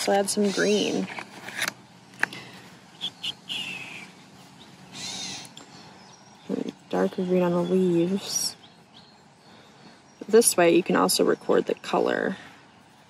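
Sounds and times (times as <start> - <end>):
catbird mewing call: 3.0 - 4.2, 4.9 - 5.6.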